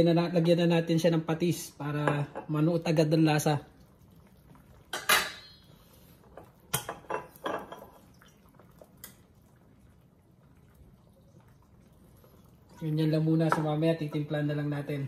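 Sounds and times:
metal pot lid clanking: 4.9s - 5.6s.

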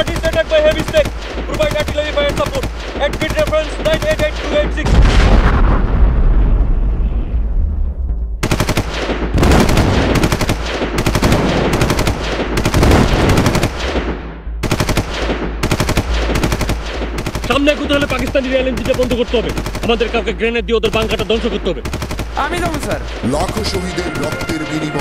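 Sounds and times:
machine-gun fire bursts: 0.0s - 4.9s, 8.4s - 25.0s
loud blast rumbling: 4.8s - 8.4s.

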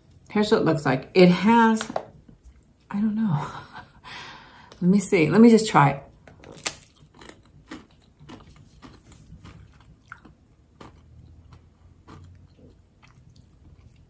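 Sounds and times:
person chewing crunchy chip: 6.5s - 14.0s.

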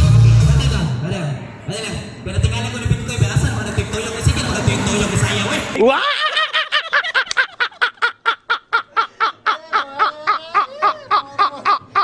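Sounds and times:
men laughing hard: 5.8s - 12.0s.

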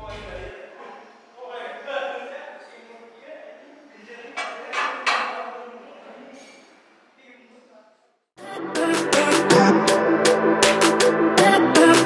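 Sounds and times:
electronic music: 8.4s - 12.0s.

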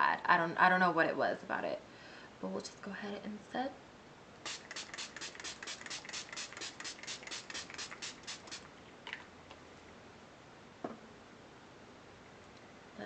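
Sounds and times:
spray bottle hissing sprays: 4.4s - 8.7s
small knock: 10.8s - 11.1s.

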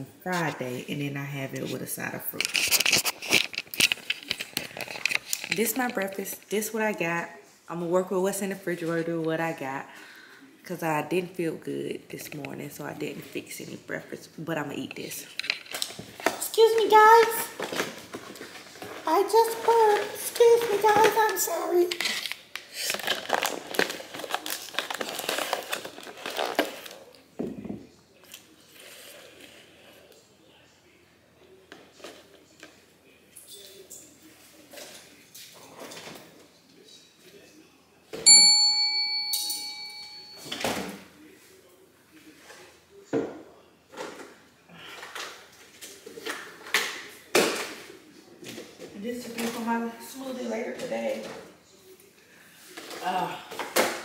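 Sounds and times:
plastic lid crinkling: 2.3s - 6.4s, 15.2s - 27.2s
kitchen items knocking on counter: 27.4s - 27.9s.

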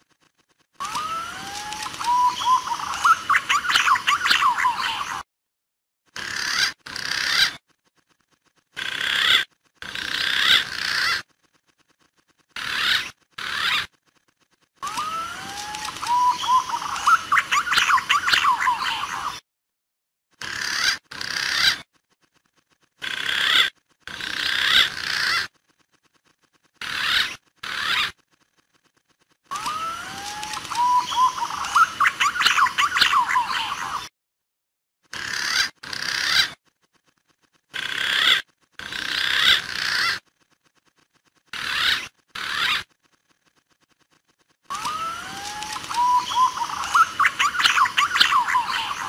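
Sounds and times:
pigeon calls: 0.8s - 5.2s, 6.2s - 7.7s, 8.7s - 11.3s, 12.6s - 14.0s, 14.8s - 19.4s, 20.4s - 21.9s, 23.0s - 25.5s, 26.8s - 28.2s, 29.5s - 34.1s, 35.1s - 36.7s, 37.7s - 40.2s, 41.5s - 43.0s, 44.7s - 49.0s.

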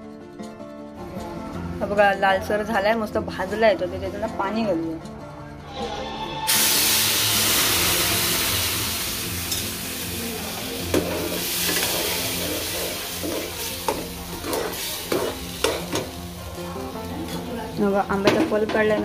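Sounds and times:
loud sizzle: 6.4s - 19.0s.

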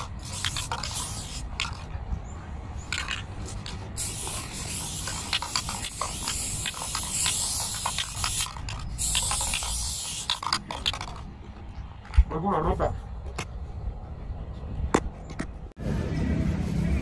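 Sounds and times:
spray paint can hissing: 0.0s - 1.9s, 2.8s - 11.2s.

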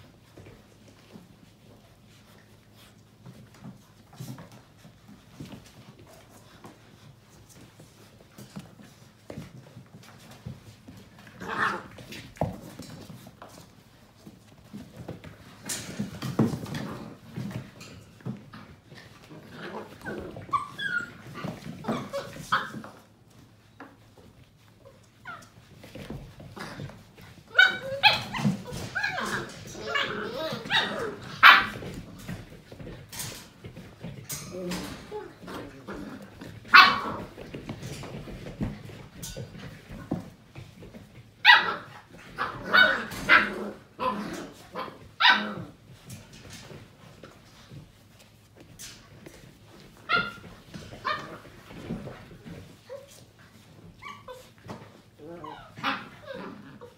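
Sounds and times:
puppies yipping and whimpering: 19.8s - 23.0s, 27.5s - 31.9s, 53.9s - 56.9s
puppy high-pitched yelp: 20.0s - 22.9s, 27.5s - 31.8s, 41.4s - 44.2s, 50.1s - 50.4s, 54.0s - 54.5s.

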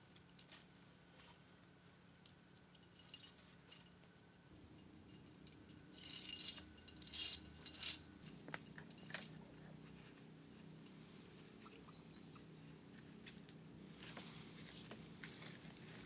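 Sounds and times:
small hard objects clinking: 4.6s - 9.4s.

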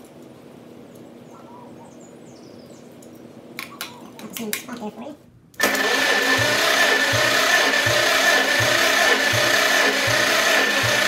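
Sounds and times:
engine cranked by starter: 5.6s - 11.0s.

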